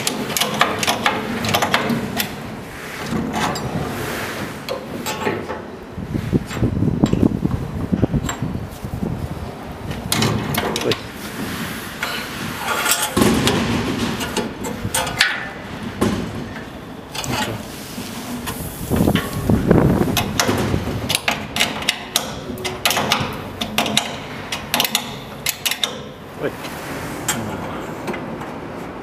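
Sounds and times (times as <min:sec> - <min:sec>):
sharp metallic clicks and knocks: 0:00.0 - 0:02.4, 0:10.0 - 0:11.1, 0:12.0 - 0:17.6, 0:20.1 - 0:27.4
elevator doors sliding rumble: 0:00.0 - 0:29.0.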